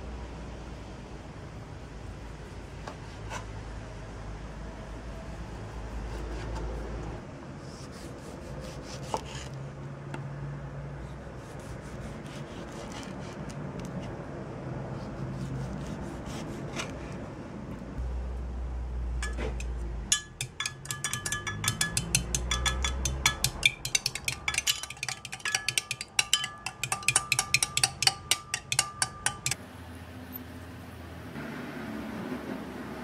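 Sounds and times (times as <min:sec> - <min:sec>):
knife slicing on wooden board: 0:07.8 - 0:09.6
fork clinking against glass: 0:19.2 - 0:29.6.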